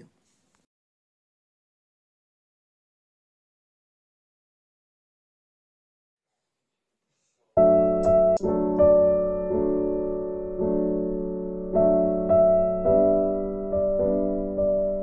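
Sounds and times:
slow piano chords: 7.6 - 15.0.

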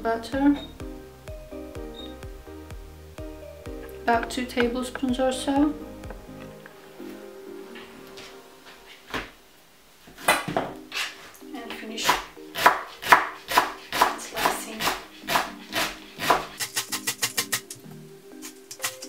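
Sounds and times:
knife chopping on plastic board: 12.1 - 17.6.

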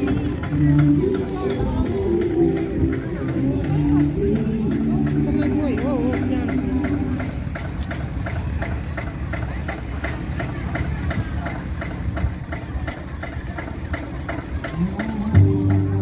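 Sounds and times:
music: 0.0 - 7.2, 14.8 - 16.0
tractor engine idling: 0.0 - 16.0.

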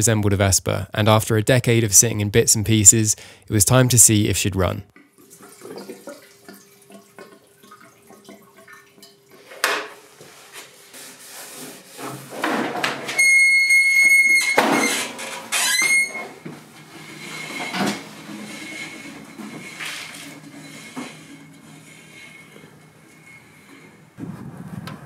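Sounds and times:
loud high squeal: 13.2 - 16.4.

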